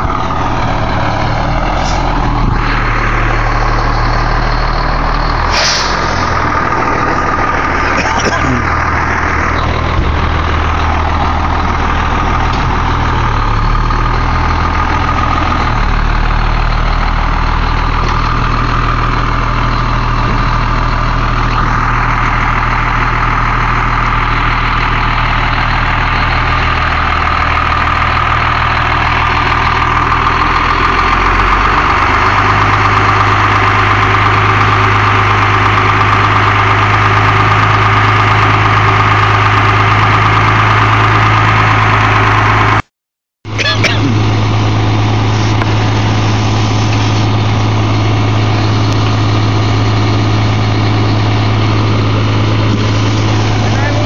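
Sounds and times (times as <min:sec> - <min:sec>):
high whine: 0:00.0 - 0:14.0
diesel engine running: 0:00.0 - 0:42.9, 0:43.5 - 0:54.0.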